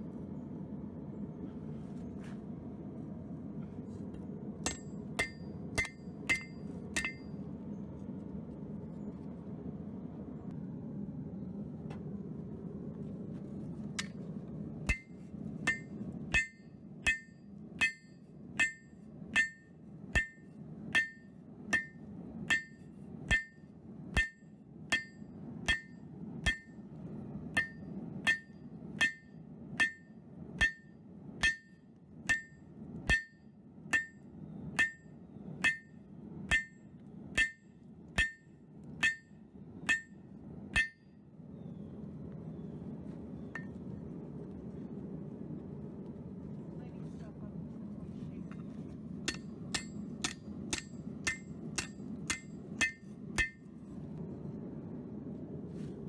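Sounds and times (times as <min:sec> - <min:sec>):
steady low rumble: 0:00.0 - 0:56.0
hammer beating steel on anvil: 0:04.6 - 0:07.3, 0:14.9 - 0:26.8, 0:27.5 - 0:34.2, 0:34.8 - 0:36.8, 0:37.4 - 0:41.1, 0:49.2 - 0:53.7.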